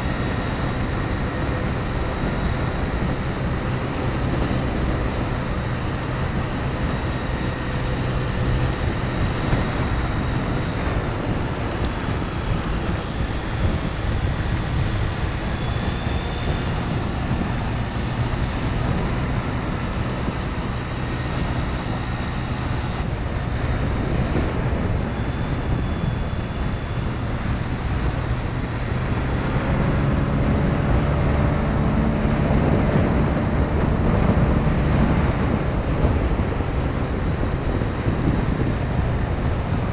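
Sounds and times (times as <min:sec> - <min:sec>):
wind noise on microphone: 0:00.0 - 0:39.9.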